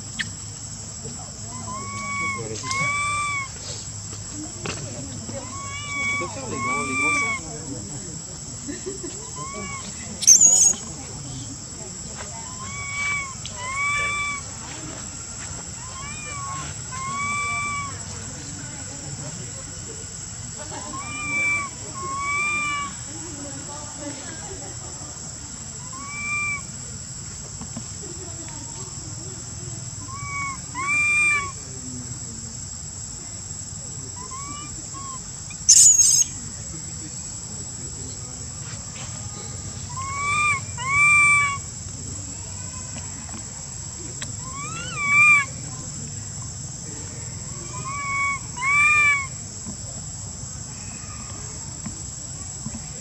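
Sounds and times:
insects droning: 0.0s - 53.0s
baby monkey coo calls: 1.4s - 3.6s, 5.3s - 7.6s, 9.1s - 10.9s, 12.4s - 14.5s, 15.8s - 18.1s, 20.7s - 23.1s, 25.8s - 26.8s, 30.0s - 31.7s, 34.1s - 36.4s, 39.8s - 41.8s, 44.2s - 45.7s, 47.4s - 49.5s.

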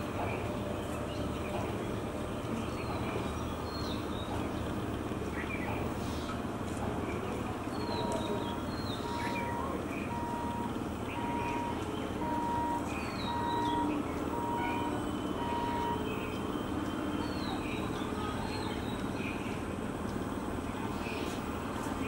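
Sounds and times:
birds chirping: 0.0s - 6.3s, 6.9s - 19.7s
road vehicles rumble: 0.0s - 22.0s
electronic beeper tone: 9.0s - 16.0s.

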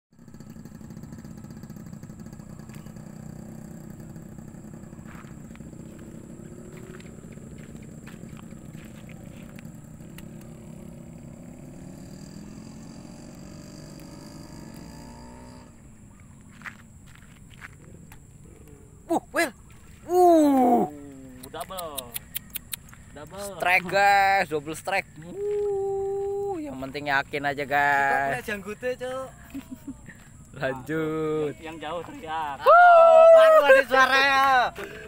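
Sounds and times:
small engine running: 0.1s - 19.3s.

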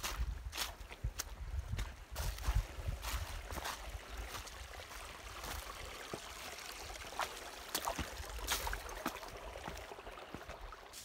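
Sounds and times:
footsteps crunching dry leaves: 0.0s - 5.6s, 7.8s - 9.8s.

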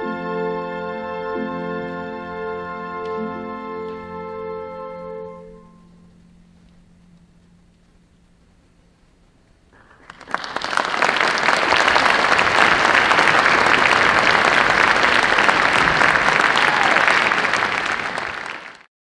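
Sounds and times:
audience applauding: 9.8s - 18.9s.

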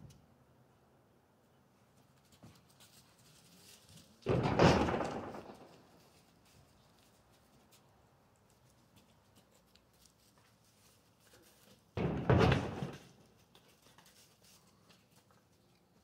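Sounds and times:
hooves banging on plywood wall: 4.2s - 5.8s, 12.0s - 13.2s.

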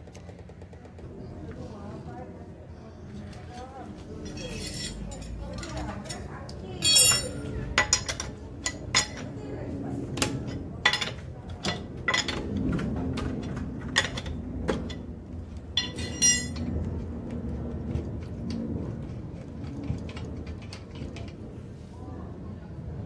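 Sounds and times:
lug nuts and wrench clinking: 4.2s - 9.2s, 15.8s - 16.7s.

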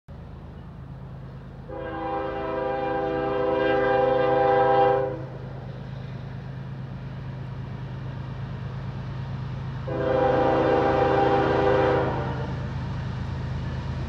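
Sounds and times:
locomotive air horn: 1.7s - 5.4s, 9.9s - 12.7s.

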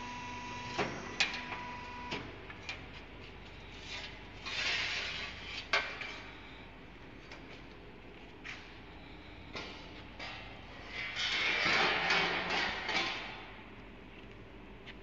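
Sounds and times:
machine hum: 0.0s - 4.0s.

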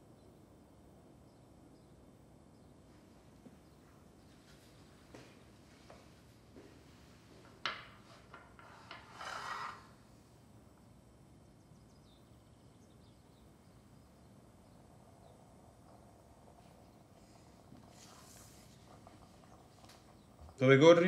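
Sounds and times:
short scrape on floor: 8.0s - 10.0s.

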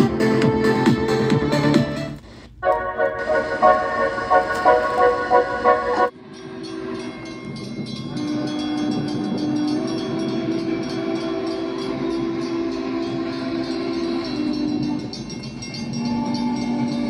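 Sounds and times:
organ music: 0.0s - 6.1s
train horn tones through tv speaker: 2.6s - 7.4s, 8.1s - 15.2s.

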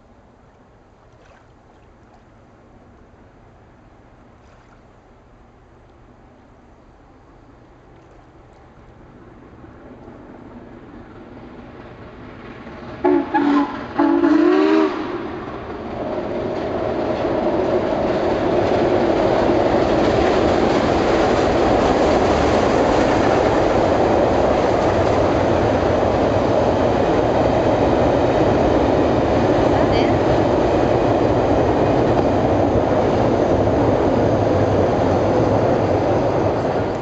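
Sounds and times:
train rumble and wheel noise: 0.0s - 37.0s
steam locomotive whistle blasts: 13.0s - 15.4s.

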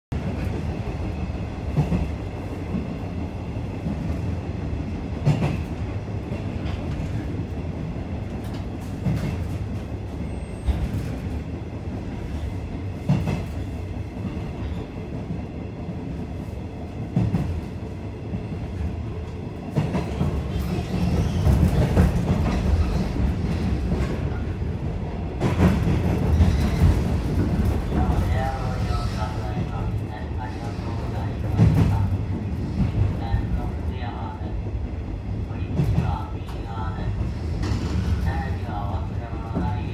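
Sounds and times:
train running noise: 0.1s - 39.9s
loud train knocks: 5.2s - 7.5s, 12.1s - 14.9s, 25.2s - 28.4s, 31.4s - 33.2s, 37.3s - 38.3s.

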